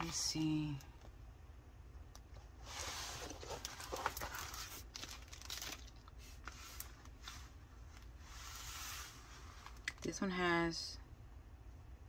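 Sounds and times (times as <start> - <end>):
plastic crinkling and rustling: 2.6 - 8.1.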